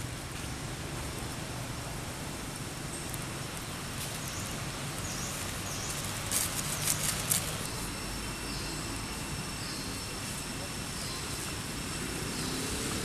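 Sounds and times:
steady outdoor hiss: 0.0s - 13.0s
dry leaves crackling: 0.1s - 8.8s
birds chirping: 2.9s - 13.0s.

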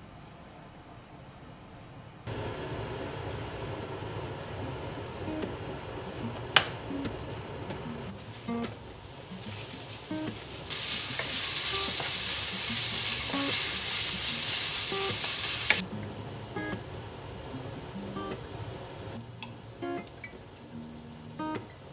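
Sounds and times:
meat sizzling in hot oil: 8.0s - 15.8s.

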